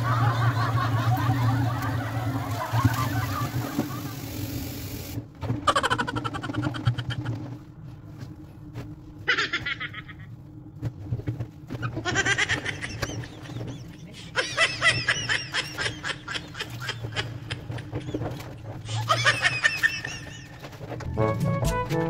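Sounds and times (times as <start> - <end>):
high-pitched laughter: 0.0 - 4.2, 5.6 - 7.6, 9.2 - 10.4, 11.8 - 20.9
clothes scrubbed in water: 0.3 - 5.2.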